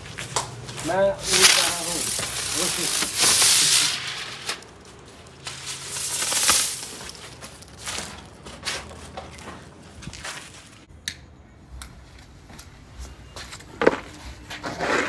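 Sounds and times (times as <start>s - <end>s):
spinning firework hissing: 1.2s - 4.8s, 5.4s - 7.3s
faint crackles and clicks: 1.2s - 8.3s.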